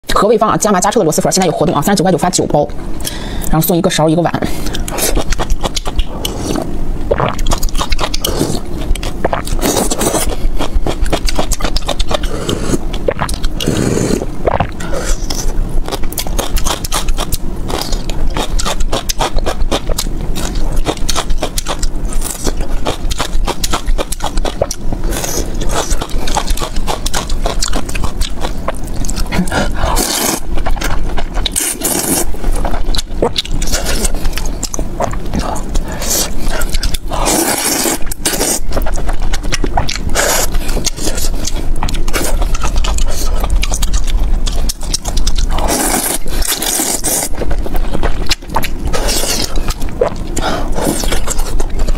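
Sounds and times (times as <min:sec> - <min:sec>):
broth sipping: 0:04.5 - 0:17.0
wet chewing with lip smacks: 0:04.6 - 0:51.9
noodles slurped: 0:16.4 - 0:51.9.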